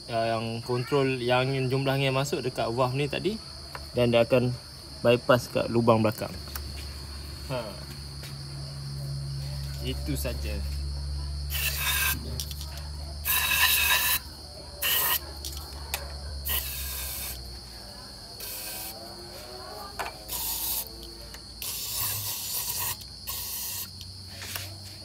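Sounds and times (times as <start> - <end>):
aerosol spray hissing bursts: 11.5 - 12.2, 13.2 - 15.2, 16.4 - 17.5, 20.3 - 20.9, 21.6 - 23.9.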